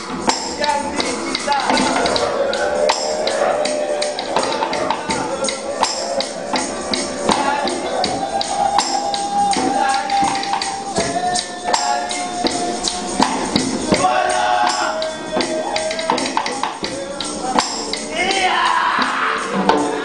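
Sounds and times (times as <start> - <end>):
tambourine jingles: 0.0 - 20.0.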